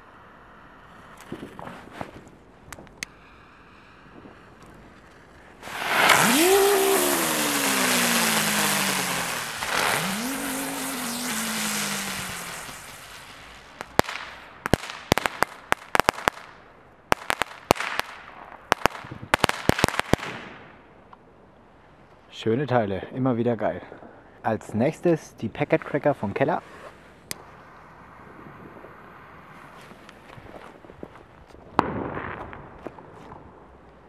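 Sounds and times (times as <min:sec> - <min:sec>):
crackling firework pops: 0:01.1 - 0:03.2, 0:04.2 - 0:21.2, 0:29.7 - 0:34.0
spinning firework hissing and whirring: 0:04.2 - 0:16.5.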